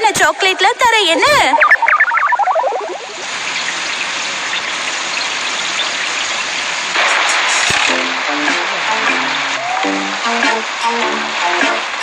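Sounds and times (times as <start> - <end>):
heavy rain falling: 3.2 - 12.0.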